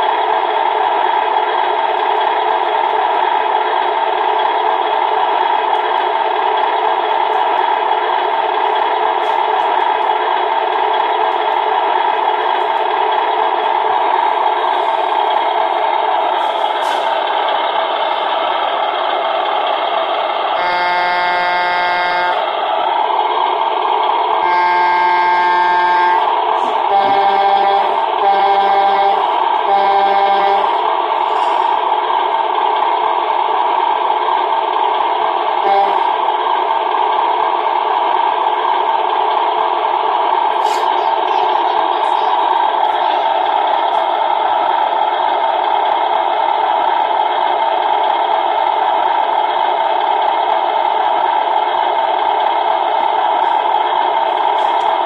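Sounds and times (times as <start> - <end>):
diesel truck engine sound: 0.0 - 55.0
truck horn sound: 20.5 - 22.5, 24.4 - 31.7, 35.6 - 36.3.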